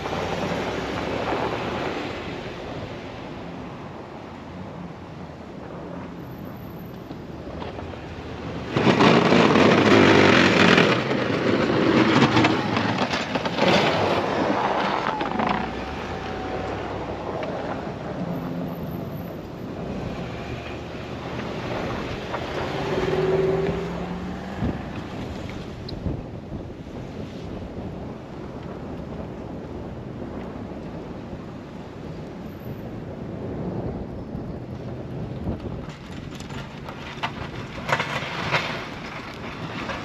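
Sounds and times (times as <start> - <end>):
loud rushing noise: 7.7 - 26.3.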